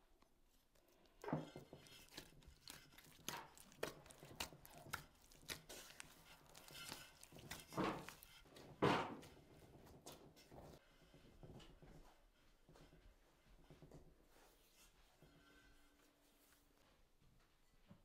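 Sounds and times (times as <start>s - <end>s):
hands kneading dough: 0.0s - 10.8s.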